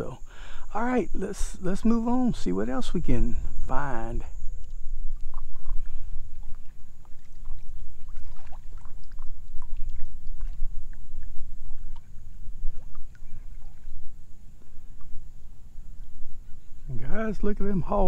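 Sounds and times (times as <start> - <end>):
wind buffeting microphone: 0.0 - 18.0
paddle splashes and drips: 4.6 - 16.8.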